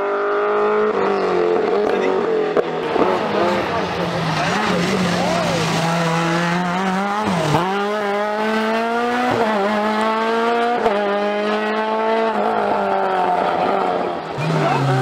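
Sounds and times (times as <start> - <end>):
rally car engine revving: 0.0 - 15.0.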